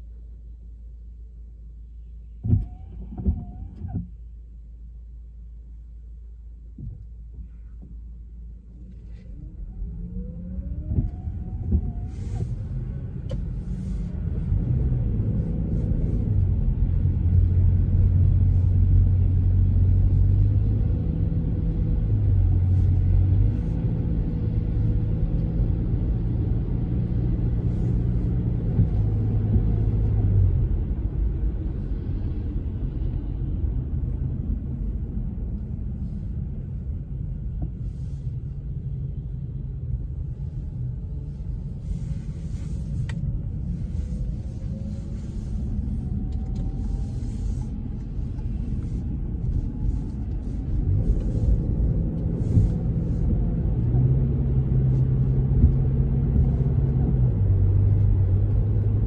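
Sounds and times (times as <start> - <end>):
car engine and tyre rumble: 0.0 - 59.0.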